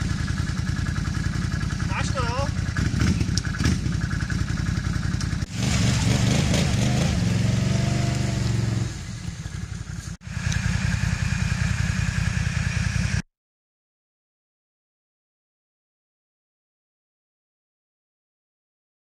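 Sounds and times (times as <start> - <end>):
atv engines revving: 0.0 - 13.2.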